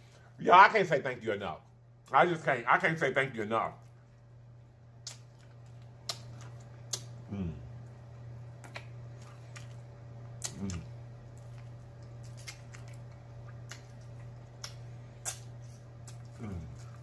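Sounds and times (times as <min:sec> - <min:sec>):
steady low hum: 0:00.0 - 0:17.0
wet lip smacks: 0:06.0 - 0:07.2, 0:10.4 - 0:10.9, 0:12.2 - 0:16.9
person humming mm: 0:07.2 - 0:07.8, 0:10.4 - 0:10.9, 0:16.3 - 0:16.9.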